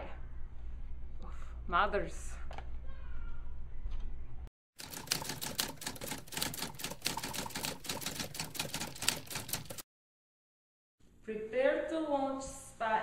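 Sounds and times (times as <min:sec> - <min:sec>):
typewriter keys clacking: 0:04.8 - 0:09.8.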